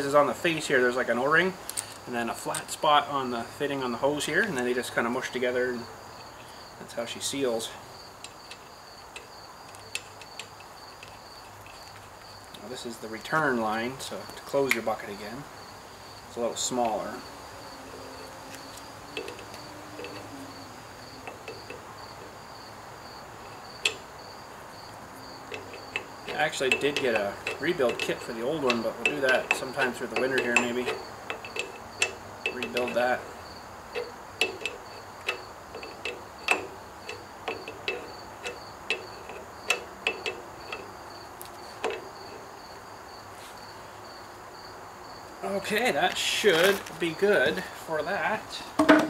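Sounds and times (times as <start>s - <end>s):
wrench clicking on hose fitting: 18.7s - 20.3s, 23.4s - 24.0s, 25.5s - 33.3s, 33.9s - 42.1s.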